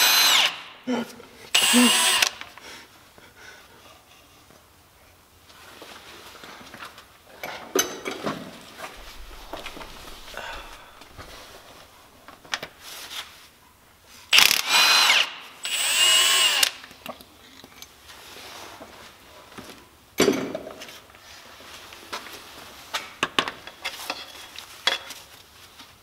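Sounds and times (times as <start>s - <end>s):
cordless power tool whining: 0.0s - 0.7s, 1.6s - 2.4s, 14.4s - 16.8s.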